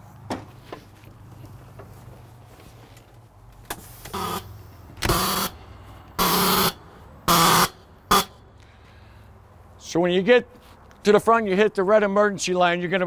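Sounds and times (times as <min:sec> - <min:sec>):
honking buzzes: 0:04.1 - 0:05.6, 0:06.2 - 0:08.5.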